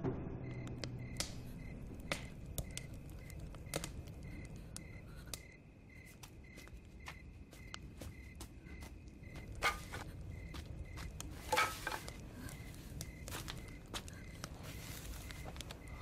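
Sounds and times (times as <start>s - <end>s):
sharp clicks and snaps: 0.6s - 5.6s.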